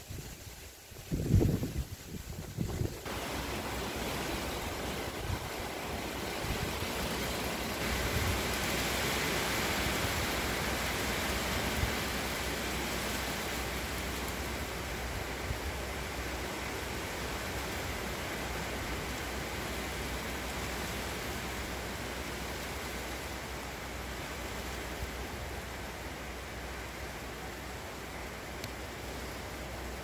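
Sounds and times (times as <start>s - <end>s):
wind buffeting microphone: 0.0s - 9.1s
wind rushing hiss: 0.0s - 30.0s.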